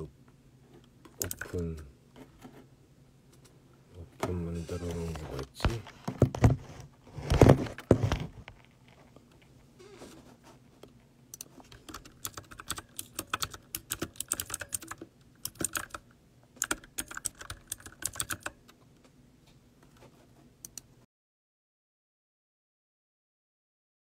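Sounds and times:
computer keyboard typing: 0:01.1 - 0:01.6, 0:11.4 - 0:18.7.

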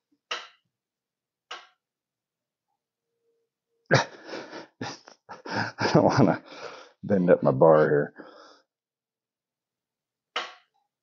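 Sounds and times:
man breathing sharply: 0:06.4 - 0:07.0, 0:08.2 - 0:08.7.

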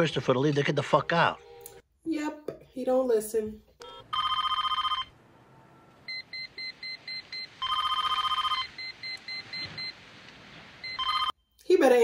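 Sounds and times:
electronic telephone ringing: 0:03.8 - 0:05.2, 0:06.1 - 0:09.9, 0:10.8 - 0:11.4.

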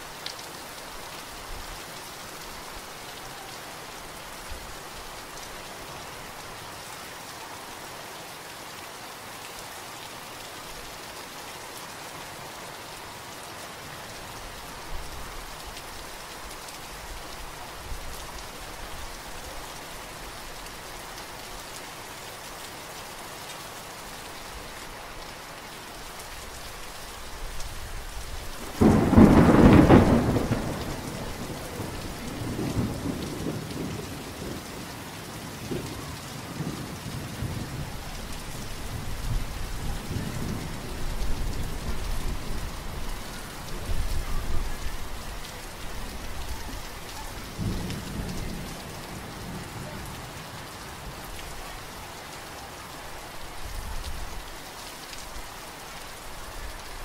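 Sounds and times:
steady rain falling: 0:00.0 - 0:57.0
loud thunderclap rolling: 0:28.6 - 0:34.6
distant thunder rumble: 0:28.6 - 0:34.7.

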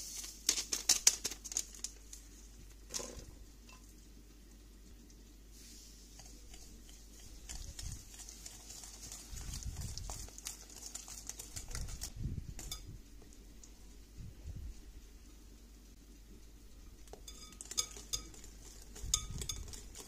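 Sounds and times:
wire whisk clicking against glass bowl: 0:19.0 - 0:20.0.

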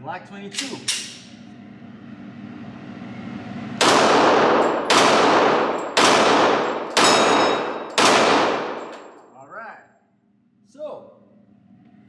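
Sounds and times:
pistol shots echoing indoors: 0:03.8 - 0:09.3.

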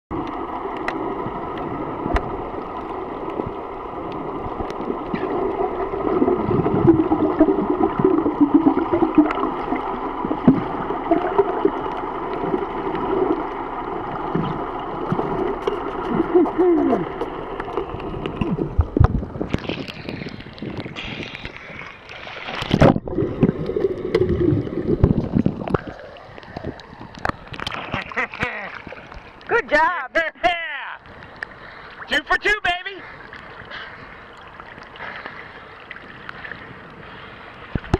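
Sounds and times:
muffled underwater hum: 0:00.1 - 0:28.3
rush of bubbles and water: 0:00.1 - 0:29.5.

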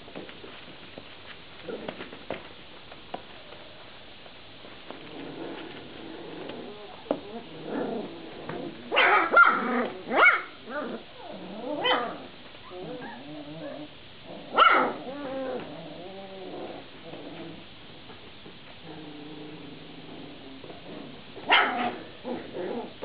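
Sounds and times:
puppies growling: 0:04.9 - 0:18.2, 0:18.8 - 0:23.0
puppy yelps: 0:08.9 - 0:13.8, 0:14.5 - 0:15.4.

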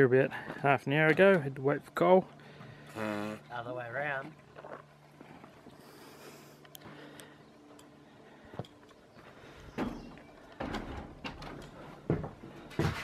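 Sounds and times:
footsteps on wooden floorboards: 0:08.5 - 0:13.0.

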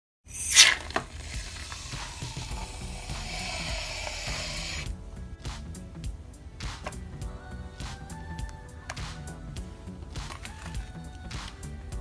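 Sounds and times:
aerosol can spraying hiss: 0:00.3 - 0:04.9.

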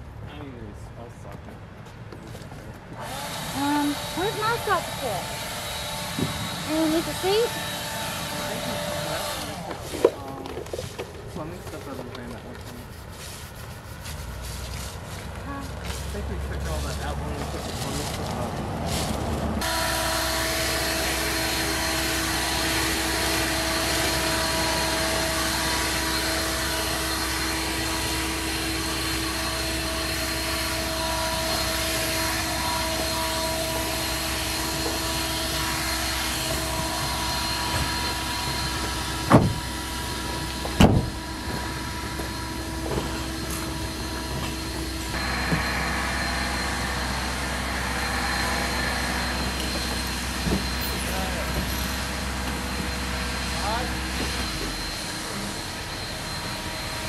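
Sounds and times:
leaf blower running: 0:03.0 - 0:12.8, 0:14.4 - 0:57.0
sharp knocks: 0:39.3 - 0:39.7.

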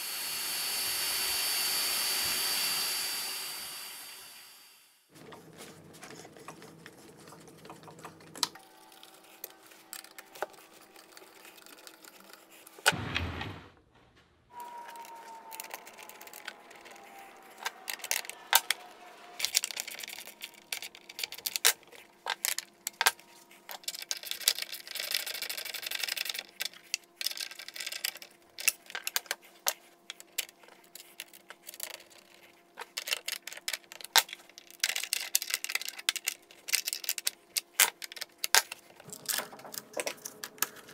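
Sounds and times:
loud thump: 0:12.9 - 0:14.4.

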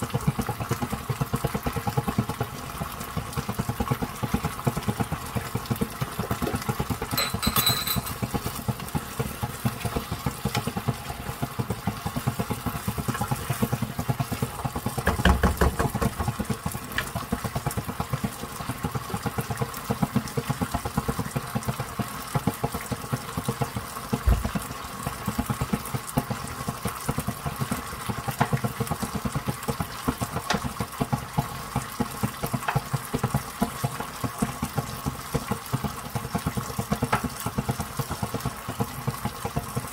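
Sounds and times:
sauce bubbling in frying pan: 0:00.0 - 0:07.2, 0:08.1 - 0:39.9
dull knock: 0:15.0 - 0:16.2.

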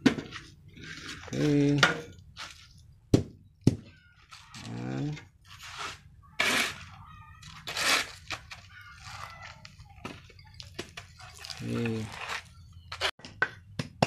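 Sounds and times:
shovel scraping concrete floor: 0:05.4 - 0:09.3.

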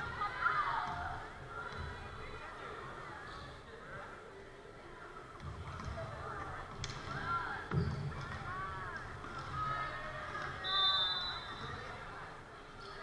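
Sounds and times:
voices in a gym: 0:00.0 - 0:13.0
referee's whistle blast: 0:10.6 - 0:11.6.

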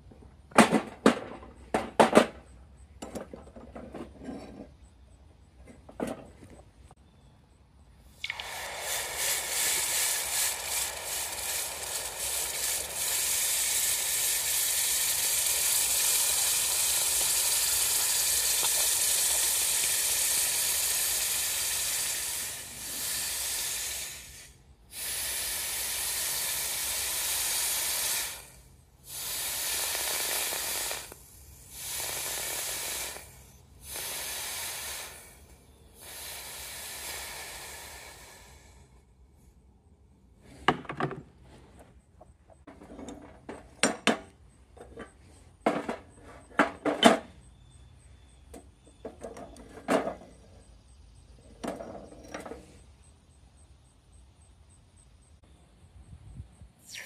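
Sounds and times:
steady hiss: 0:08.0 - 0:39.1.

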